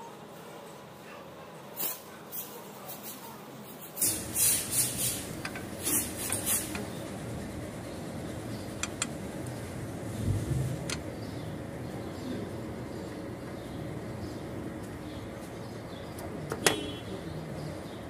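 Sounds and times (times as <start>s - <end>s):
sharp ticks: 8.8s - 9.2s.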